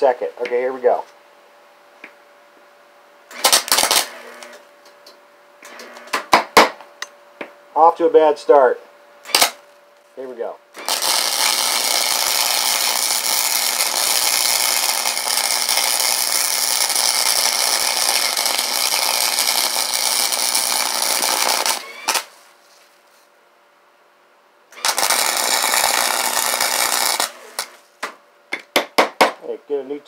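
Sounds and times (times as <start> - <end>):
welder arc crackling: 3.3 - 6.2, 9.3 - 22.5, 24.7 - 28.1.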